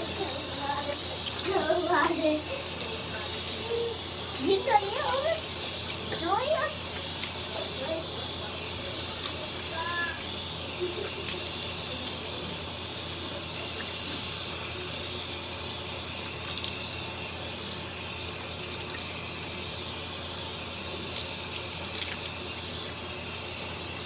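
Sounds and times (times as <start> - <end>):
tap running into sink: 5.6 - 7.4.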